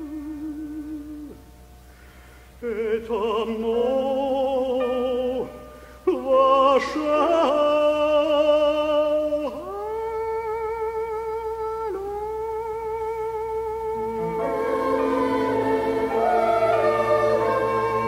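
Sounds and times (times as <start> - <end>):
breath: 1.9 - 2.6, 5.7 - 6.0
man singing liturgy: 2.6 - 14.6.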